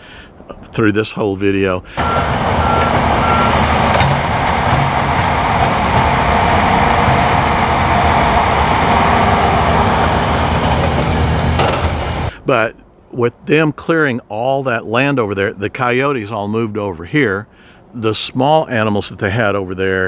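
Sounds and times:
diesel engines running under load: 1.8 - 12.5
backup alarm beeps: 2.0 - 3.8.

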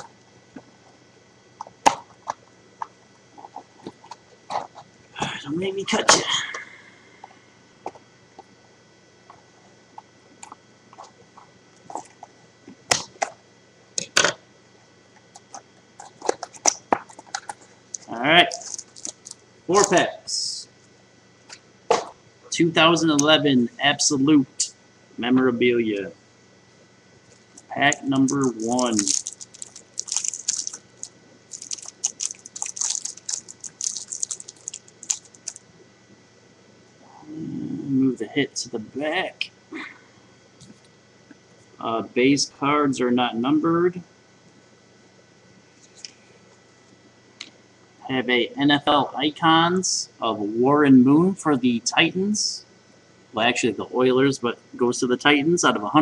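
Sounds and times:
cardboard cracking: 28.0 - 35.6.

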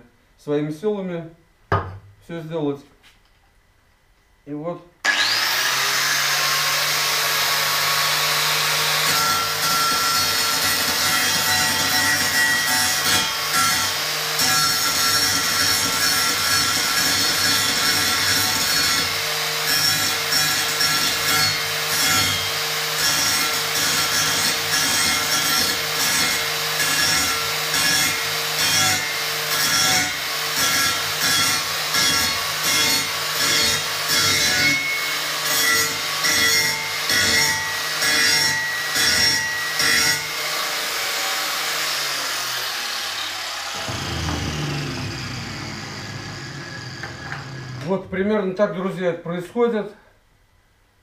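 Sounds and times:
angle grinder grinding steel: 5.1 - 48.0.

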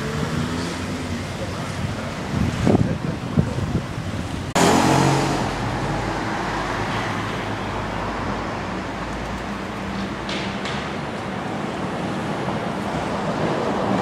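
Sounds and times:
rushing water: 0.0 - 9.9
wind on microphone: 1.8 - 5.8.

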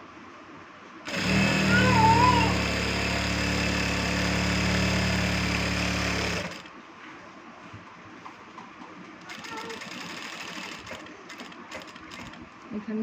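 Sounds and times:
sewing machine running: 1.1 - 6.7, 9.3 - 12.4.

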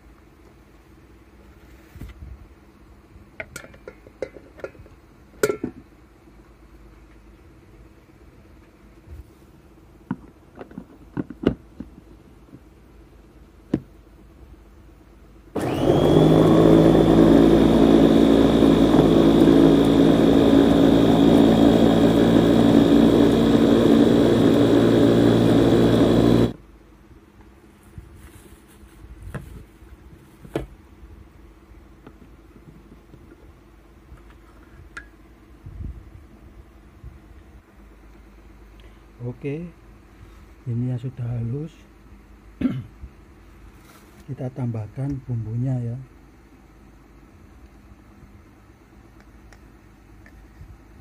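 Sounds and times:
clicks and knocks of bowl and lid: 3.4 - 5.8
food chopper motor grinding: 15.6 - 26.6.

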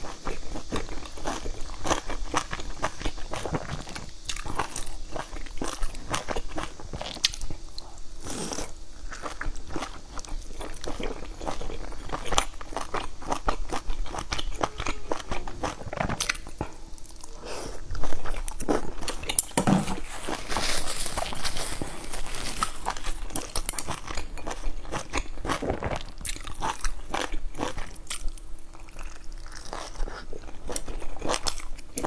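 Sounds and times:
person chewing wet mouth sounds: 8.4 - 19.5.

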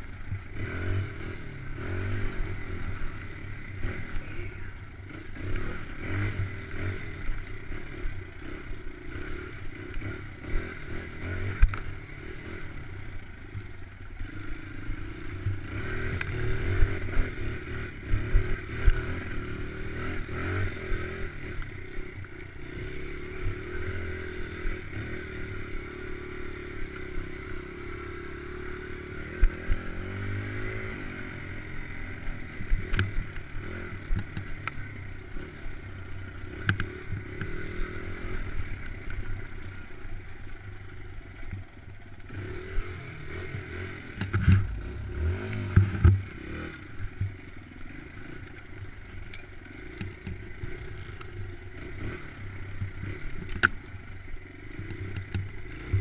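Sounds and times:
dirt bike engine revving: 0.0 - 56.0
bike knocking and rattling: 48.4 - 56.0.

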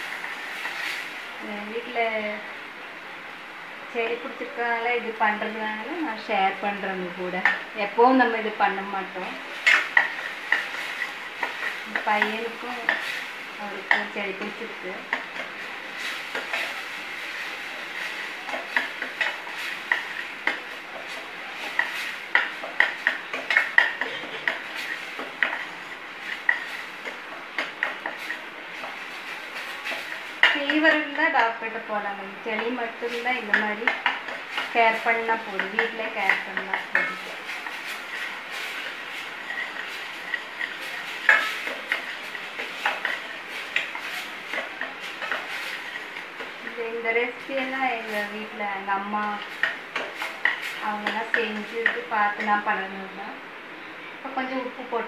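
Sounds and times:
frying hiss: 0.0 - 55.0
spoon clinking and scraping pan: 9.4 - 13.2, 13.8 - 31.6, 32.6 - 46.7
ladle scraping a metal pan: 35.4 - 46.6.

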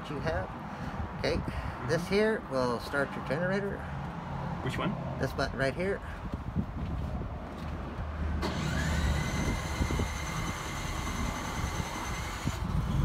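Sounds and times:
generator cranking whine: 8.4 - 13.0.

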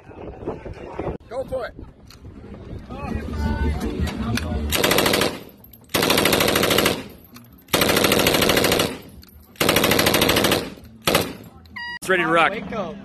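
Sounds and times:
machine gun automatic fire: 4.7 - 11.4.

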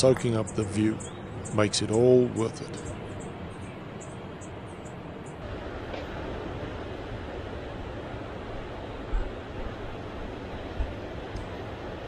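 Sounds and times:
wind rumble on microphone: 4.4 - 12.0.

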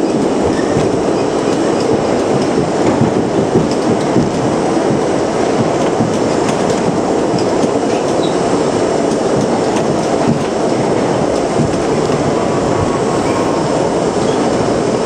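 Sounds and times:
subway train wheels on rail: 0.0 - 15.0.

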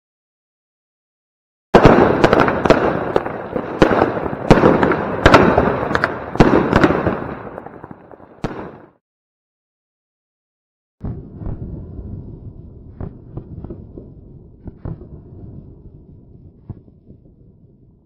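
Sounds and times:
firework bangs: 1.8 - 9.0
firework crackling: 1.8 - 9.0.

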